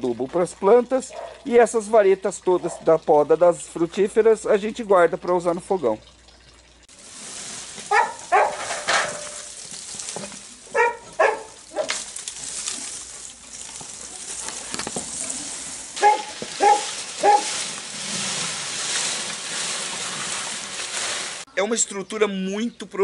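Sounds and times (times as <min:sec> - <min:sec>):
dog barking: 0:01.1 - 0:01.4, 0:07.9 - 0:08.7, 0:10.7 - 0:12.0, 0:16.0 - 0:17.6
background hiss: 0:06.9 - 0:21.5.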